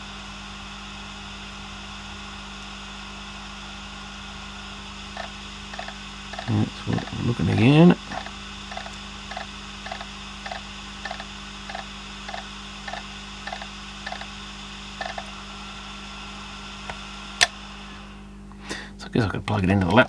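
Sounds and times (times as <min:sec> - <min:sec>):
hard drive platter hum: 0:00.0 - 0:20.0
hard drive heads ticking: 0:05.1 - 0:14.4, 0:15.0 - 0:15.4
sharp hard drive click: 0:05.2 - 0:07.1, 0:08.1 - 0:14.3, 0:15.0 - 0:15.3.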